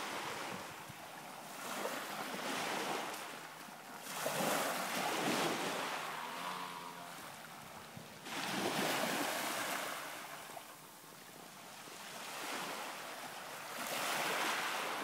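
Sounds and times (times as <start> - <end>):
waves washing up a pebble beach: 4.0 - 6.9, 8.2 - 10.5, 13.6 - 15.0.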